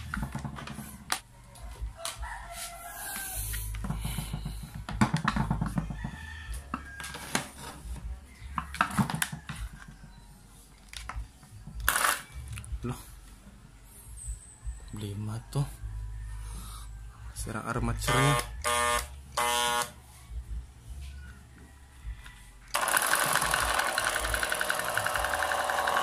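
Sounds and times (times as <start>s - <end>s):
rooster crowing: 1.7s - 3.6s, 5.6s - 7.7s, 21.6s - 23.6s.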